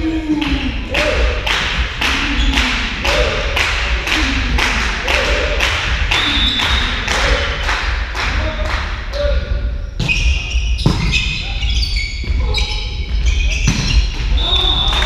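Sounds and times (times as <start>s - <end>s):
spectators clapping rhythmically: 0.2s - 9.1s, 14.6s - 15.0s.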